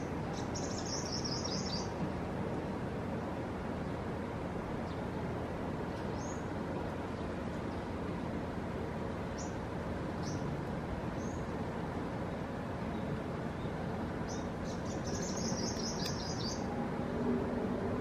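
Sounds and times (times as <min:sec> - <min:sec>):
wind: 0:00.0 - 0:18.0
high bird chirps: 0:00.3 - 0:02.0, 0:14.3 - 0:16.7.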